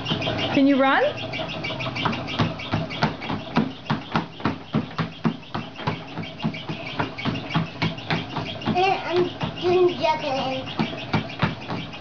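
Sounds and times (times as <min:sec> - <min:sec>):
child's feet patting on treadmill: 0:00.0 - 0:12.0
treadmill hum: 0:00.0 - 0:12.0.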